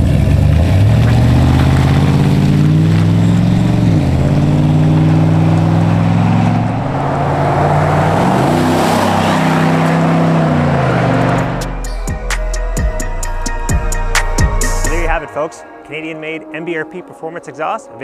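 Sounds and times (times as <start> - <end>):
pickup truck engine accelerating: 0.0 - 12.4.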